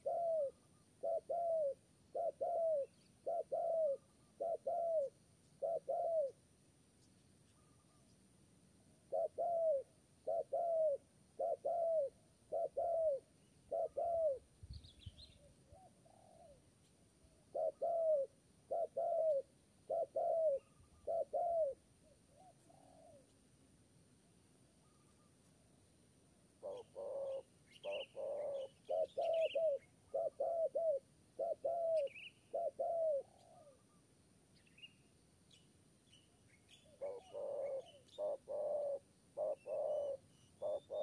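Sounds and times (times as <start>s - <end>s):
dove cooing: 0.0s - 6.4s, 9.0s - 16.7s, 17.3s - 23.4s, 26.6s - 34.0s, 36.8s - 41.0s
bird chirp: 0.0s - 8.4s, 9.1s - 23.5s, 24.7s - 41.0s.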